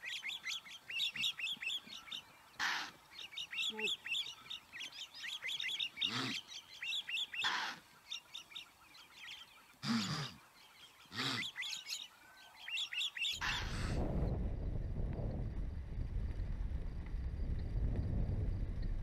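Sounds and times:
small birds chirping: 0.0 - 13.9
wildebeest grunting and snorting: 2.6 - 3.0, 5.9 - 6.6, 7.4 - 7.9, 9.8 - 10.4, 11.0 - 11.8.

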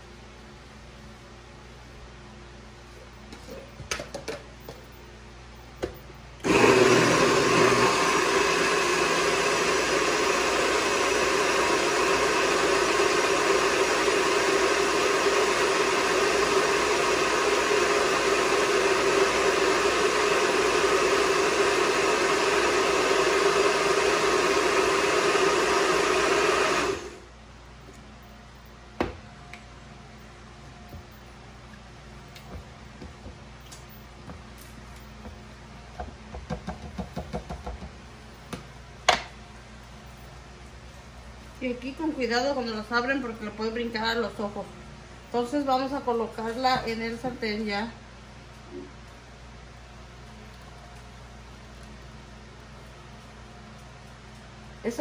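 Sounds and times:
blender running: 6.4 - 27.3.

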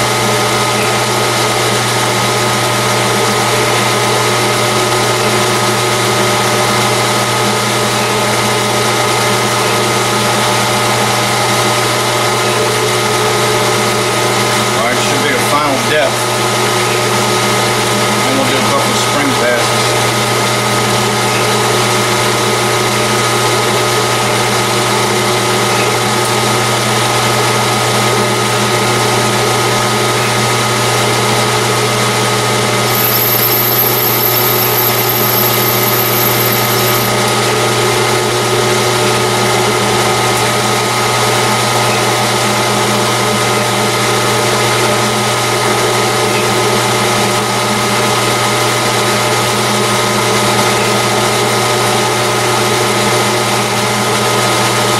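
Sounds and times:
metal lathe motor hum: 0.0 - 54.9
thin high whistle: 32.9 - 37.2.

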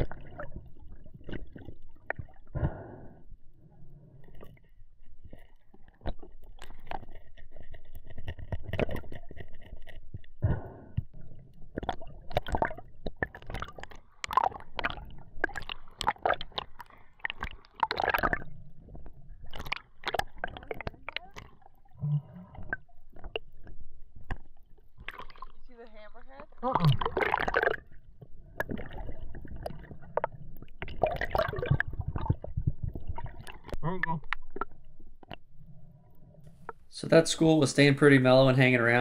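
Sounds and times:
water sloshing and gurgling: 0.0 - 39.0
sharp knocks and crackles: 5.3 - 11.2.

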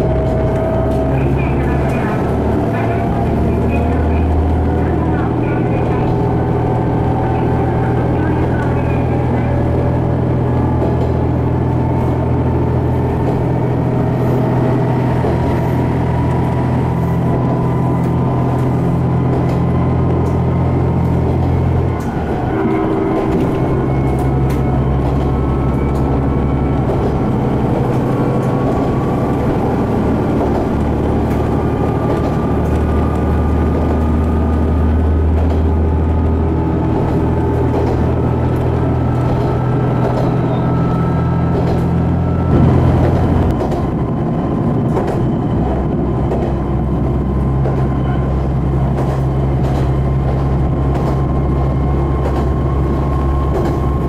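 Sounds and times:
diesel railcar engine drone: 0.0 - 54.0
wheel and track noise: 0.0 - 54.0.

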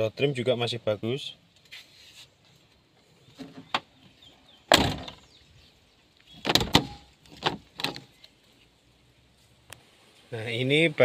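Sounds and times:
car door shutting with thud: 4.7 - 5.3
door latch clicks and knocks: 6.4 - 8.0.

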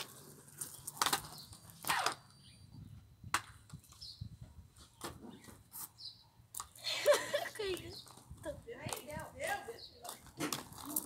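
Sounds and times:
roller skates rolling on tiles: 0.0 - 2.4, 6.6 - 11.0.

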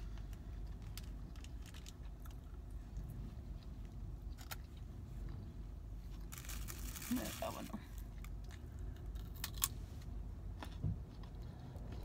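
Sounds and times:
low hum in car cabin: 0.0 - 12.0
person chewing food: 10.4 - 12.0.

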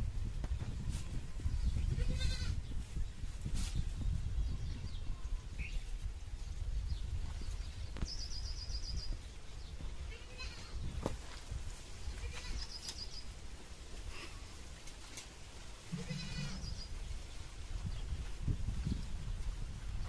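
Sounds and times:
goat bleating: 2.0 - 2.6, 10.1 - 10.8, 12.2 - 12.8, 15.9 - 16.8.

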